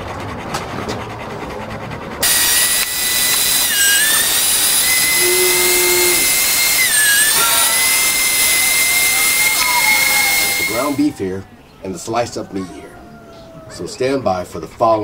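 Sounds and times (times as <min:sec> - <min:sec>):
meat grinder motor whining: 0:02.2 - 0:11.2.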